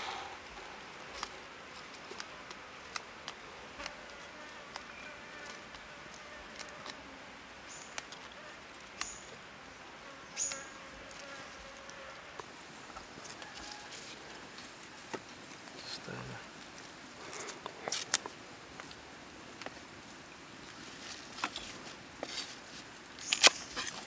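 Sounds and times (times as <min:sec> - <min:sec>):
herb leaves snapping and rustling: 0:00.9 - 0:07.1, 0:10.4 - 0:24.0
insect buzzing: 0:10.0 - 0:12.4.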